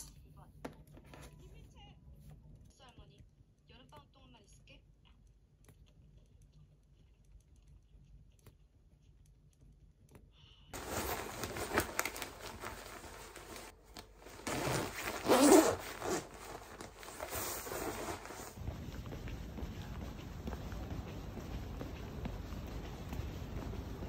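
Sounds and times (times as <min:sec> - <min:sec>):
zipper zipping up: 0:10.8 - 0:18.6
nylon vest rustling: 0:10.8 - 0:24.0.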